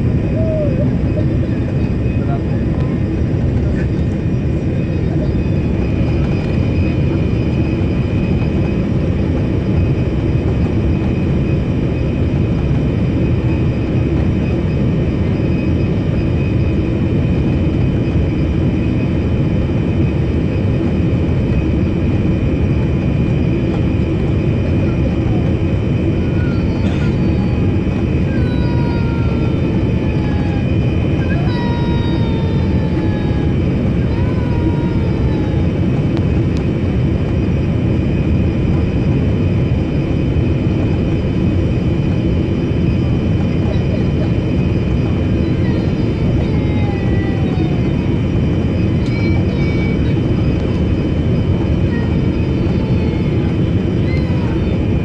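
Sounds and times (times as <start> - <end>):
airplane cabin rumble: 0.0 - 55.0
constant high tone: 40.7 - 55.0.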